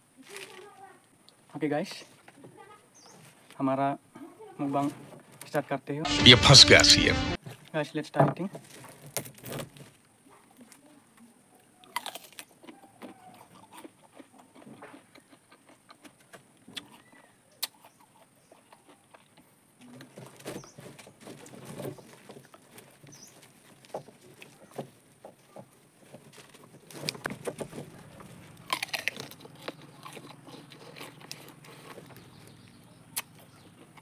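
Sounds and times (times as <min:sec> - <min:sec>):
chewing: 0:10.7 - 0:34.0
pod shells cracking: 0:11.9 - 0:16.3, 0:26.4 - 0:34.0.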